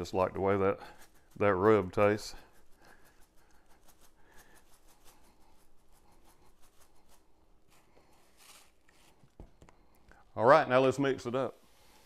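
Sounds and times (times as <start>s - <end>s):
seasoning shaker rattling: 0.0s - 7.4s.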